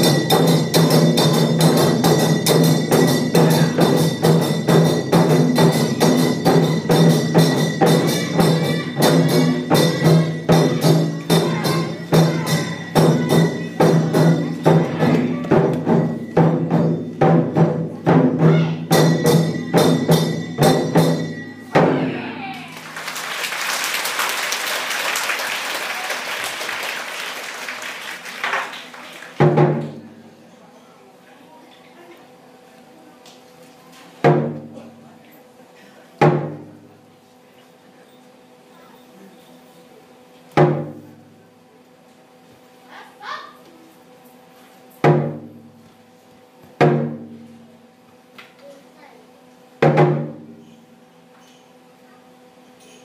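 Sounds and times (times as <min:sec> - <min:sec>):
large drums struck in rhythm: 0:00.0 - 0:22.2, 0:29.4 - 0:30.1, 0:34.2 - 0:34.8, 0:36.2 - 0:36.8, 0:40.6 - 0:41.2, 0:45.0 - 0:45.8, 0:46.8 - 0:47.6, 0:49.8 - 0:50.6
audience applauding: 0:22.6 - 0:29.4.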